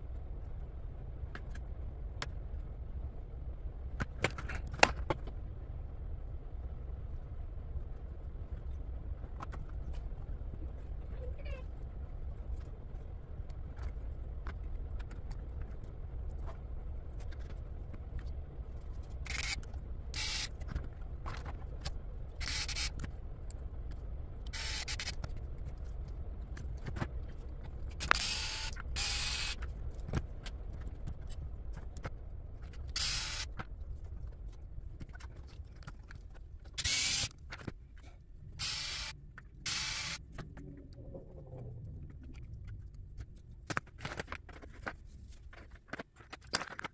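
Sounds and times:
low steady hum: 0:00.0 - 0:46.9
plastic parts scraping: 0:42.0 - 0:46.9.

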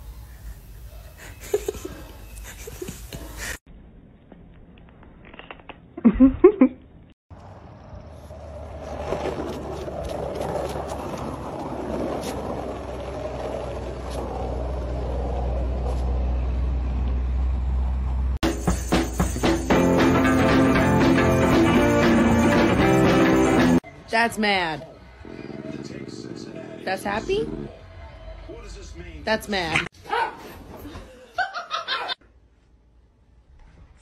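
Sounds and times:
skateboard wheels rolling on asphalt: 0:07.3 - 0:18.3.

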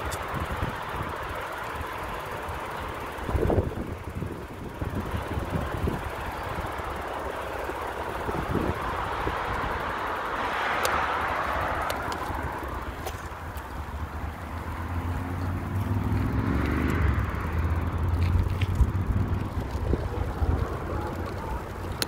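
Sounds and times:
motor vehicle passing: 0:00.0 - 0:22.0
tyre noise on pavement: 0:00.0 - 0:22.0
wind rumbling on microphone: 0:03.1 - 0:10.0, 0:11.6 - 0:22.0.

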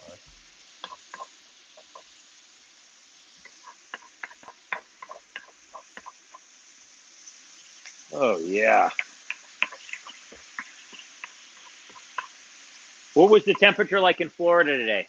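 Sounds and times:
faint sizzle: 0:00.0 - 0:15.0
utensils tapping pans: 0:08.8 - 0:12.4, 0:13.2 - 0:13.8.

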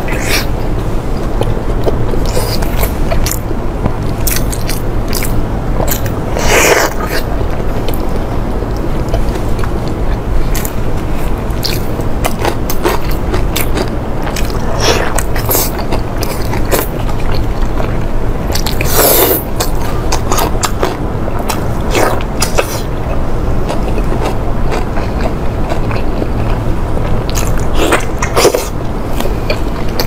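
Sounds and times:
steady low hum: 0:00.0 - 0:30.0
person chewing with lip smacks: 0:23.7 - 0:26.6, 0:27.3 - 0:30.0.

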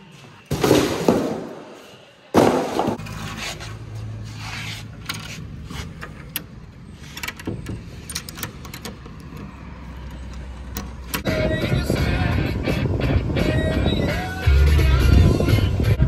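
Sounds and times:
metal hasp and padlock rattling: 0:06.0 - 0:11.3
music: 0:11.2 - 0:16.0.

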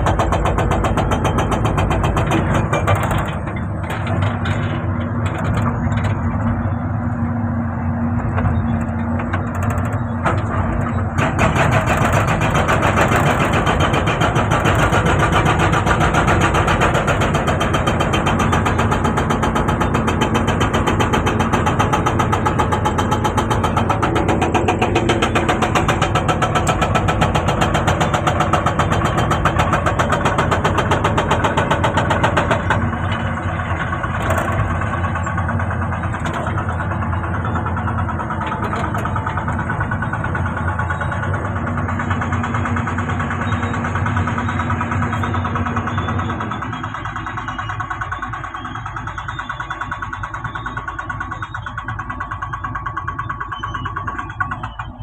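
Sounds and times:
hydraulic breaker hammering rock: 0:00.0 - 0:06.4, 0:08.3 - 0:55.0
excavator engine running: 0:00.0 - 0:55.0.

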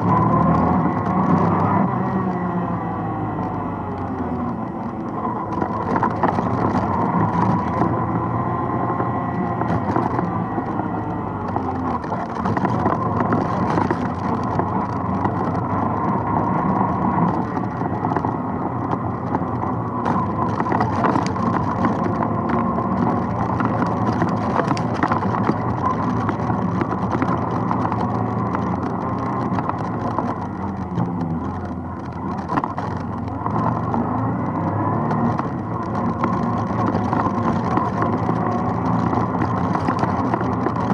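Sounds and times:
atv engine running: 0:00.0 - 0:40.9
rattles and knocks over rough ground: 0:00.0 - 0:40.9.

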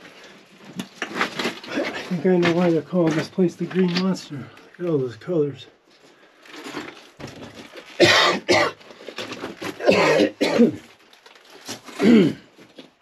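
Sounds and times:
man coughing: 0:08.0 - 0:08.8, 0:09.8 - 0:10.8, 0:12.0 - 0:12.4
man clearing his throat: 0:09.8 - 0:10.8, 0:12.0 - 0:12.4.

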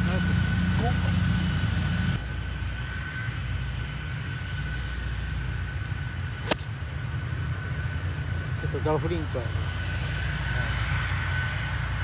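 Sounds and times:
golf club striking ball: 0:06.4 - 0:06.9.

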